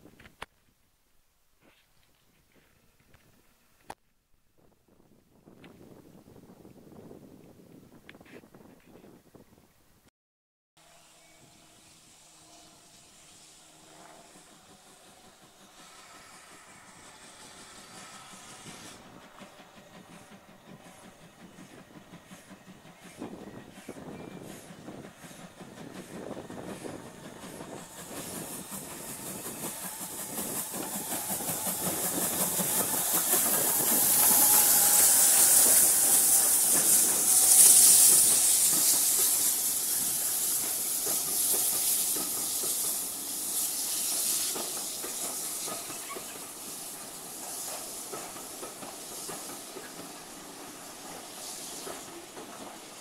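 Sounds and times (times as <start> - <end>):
steam locomotive hissing: 10.8 - 53.0
carriages rolling on rails: 13.2 - 53.0.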